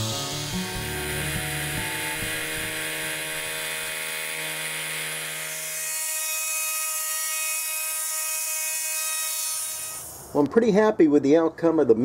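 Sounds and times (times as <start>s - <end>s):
high cutting hiss: 0.0s - 5.8s, 9.4s - 10.4s
milling machine whine: 0.0s - 6.8s.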